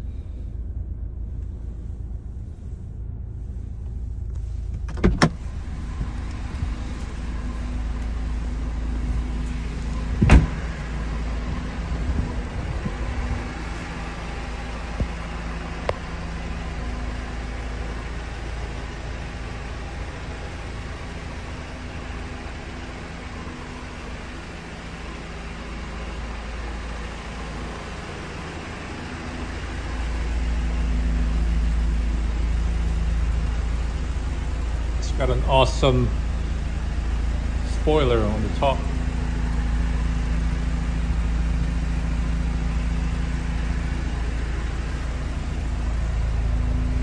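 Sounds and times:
car engine idling: 0.0 - 47.0
car door clicking open: 4.8 - 5.4, 9.9 - 10.6
car door shutting with a thump: 4.8 - 6.1, 9.5 - 10.8.

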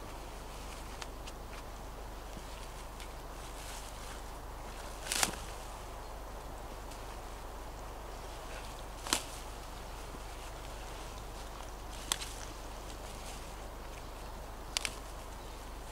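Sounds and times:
fern stems snapping: 4.8 - 5.6, 8.6 - 9.5, 10.5 - 13.2, 14.7 - 15.2.

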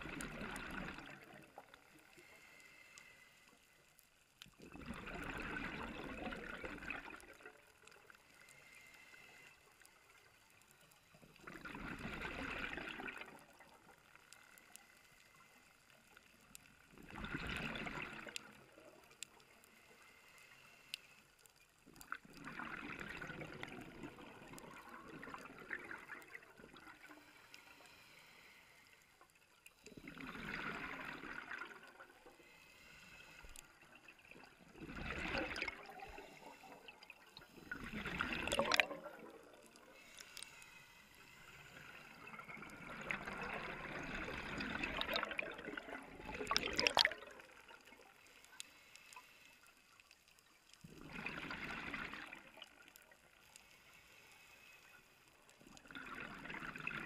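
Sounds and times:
exhaled bubbles underwater: 0.0 - 2.2, 4.6 - 8.2, 11.2 - 14.0, 16.9 - 19.2, 21.9 - 27.2, 29.9 - 32.4, 33.7 - 40.1, 41.8 - 48.2, 50.8 - 53.4, 55.6 - 57.0.

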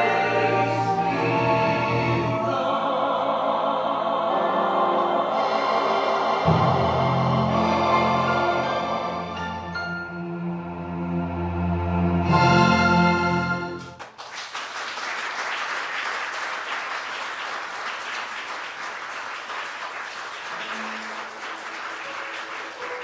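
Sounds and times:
sustained musical chord: 4.3 - 13.8
audience applause: 13.8 - 23.0.

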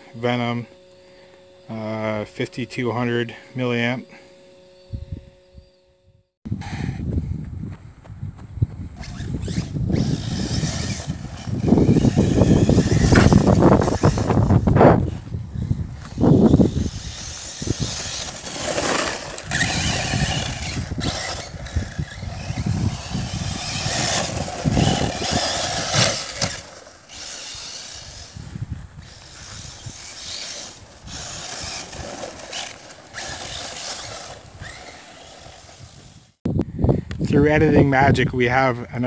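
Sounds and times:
electric motor whining: 0.0 - 6.4, 8.7 - 36.4
tyre and chassis noise: 7.4 - 36.4.

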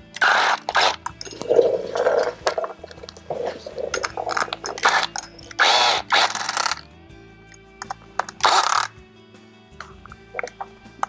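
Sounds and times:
cordless ratchet bursts: 0.0 - 6.8, 7.8 - 8.9.

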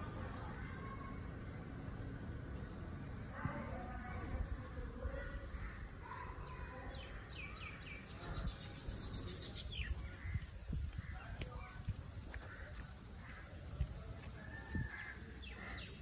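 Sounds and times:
bird chirping: 6.5 - 10.5
wind rumble: 8.0 - 15.3.

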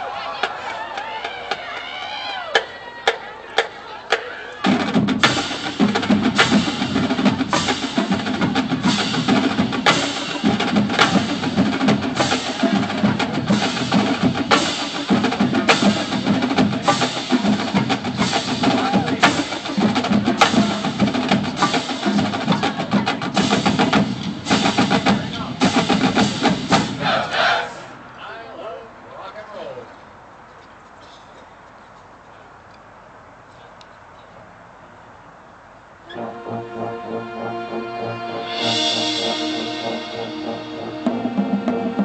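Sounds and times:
marching band playing: 0.4 - 28.0, 36.1 - 42.0.

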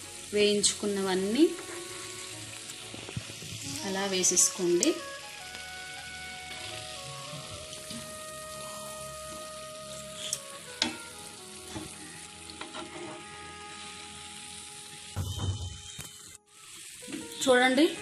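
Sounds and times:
sizzling hiss in a pan: 0.0 - 18.0
spatula scraping pan: 12.6 - 13.3.

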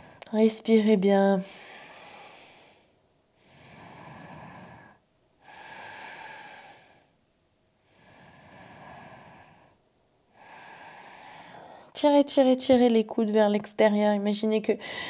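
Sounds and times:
woman breathing slowly: 0.0 - 0.3, 1.4 - 7.2, 7.8 - 12.0, 14.8 - 15.0.

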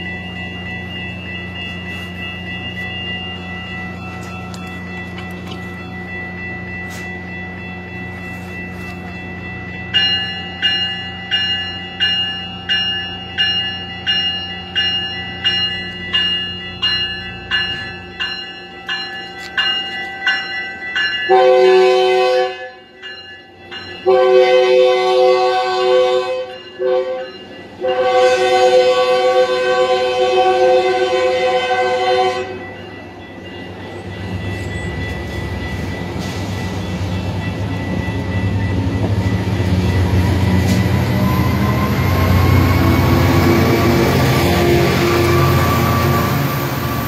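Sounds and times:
train bell ringing: 0.0 - 47.0
train air horn blasts: 21.3 - 22.8, 24.1 - 32.6.

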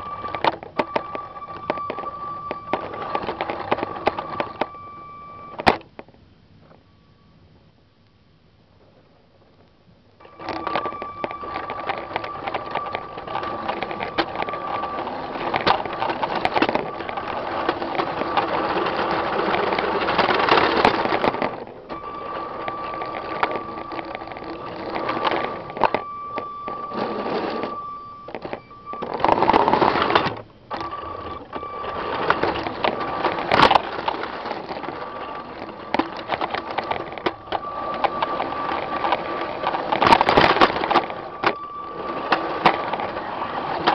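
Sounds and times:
wheels clicking on plastic track: 0.0 - 6.0, 10.2 - 43.9.

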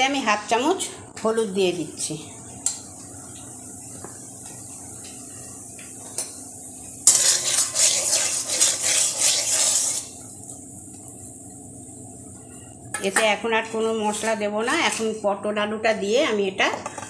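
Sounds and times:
oil sizzling: 2.3 - 13.3
loud scraping against pan: 7.0 - 10.1.

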